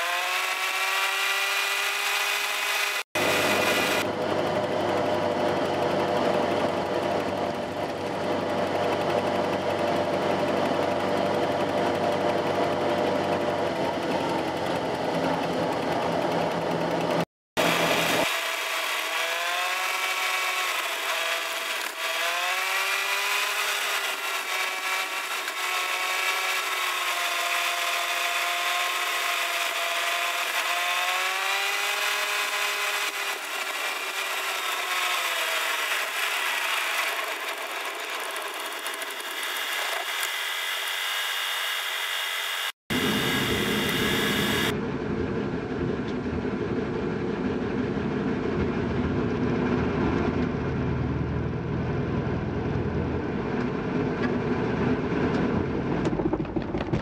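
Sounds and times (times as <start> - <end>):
sped-up whiny car engine: 0.0 - 45.0
low steady car engine: 3.2 - 18.2, 42.9 - 56.3.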